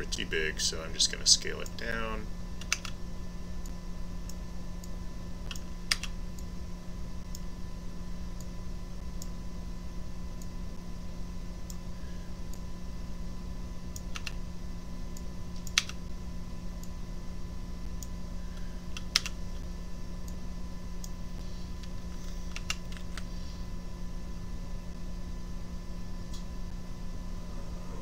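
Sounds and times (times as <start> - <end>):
low electrical hum: 0.0 - 28.0
keyboard and mouse clicks: 2.6 - 3.0, 5.5 - 6.1, 14.0 - 14.4, 15.6 - 16.0, 18.9 - 19.4.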